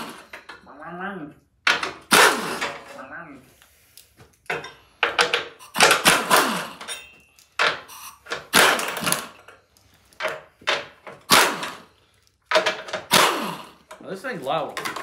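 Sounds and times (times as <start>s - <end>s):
pneumatic impact wrench bursts: 0.0s - 0.4s, 1.8s - 2.9s, 5.2s - 7.0s, 7.7s - 9.4s, 10.9s - 13.9s.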